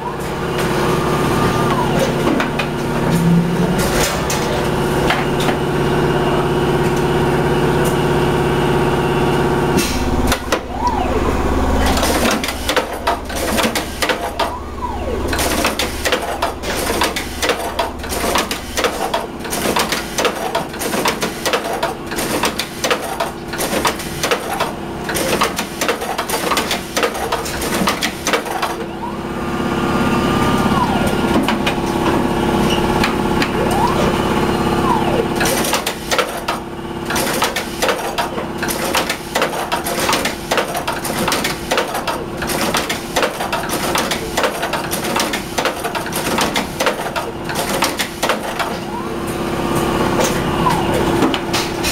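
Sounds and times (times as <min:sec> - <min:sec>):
machine whine: 0:00.0 - 0:40.3, 0:46.2 - 0:51.9.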